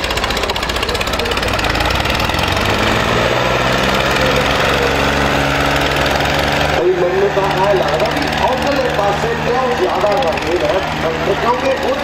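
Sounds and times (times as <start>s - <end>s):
diesel tractor engines under load: 0.0s - 12.0s.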